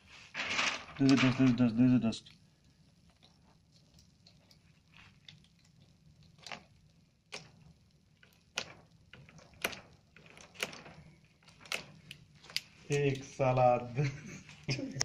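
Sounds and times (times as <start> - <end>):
plastic sheet clicking and crackling: 0.3 - 1.8, 3.0 - 13.7
plastic sheet snapping: 8.5 - 13.2.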